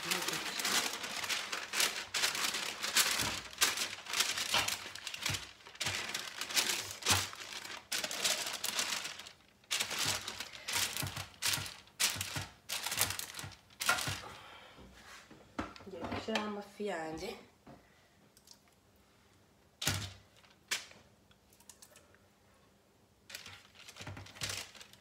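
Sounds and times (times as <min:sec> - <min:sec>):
baking paper crinkling: 0:00.0 - 0:14.3, 0:23.3 - 0:25.0.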